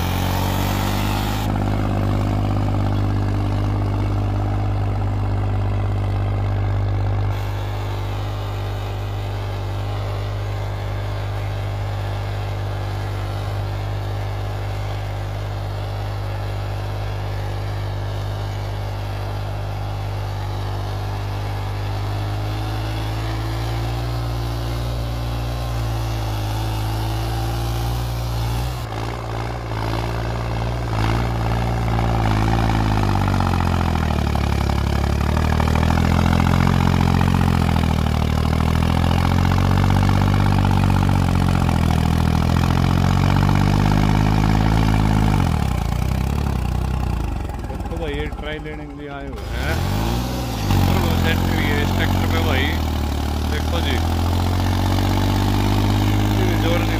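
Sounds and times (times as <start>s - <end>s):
tractor diesel engine under load: 0.0s - 56.9s.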